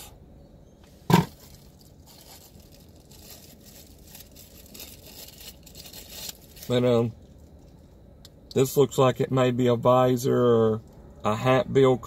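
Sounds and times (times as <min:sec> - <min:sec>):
plastic film crinkling: 0:01.3 - 0:07.4.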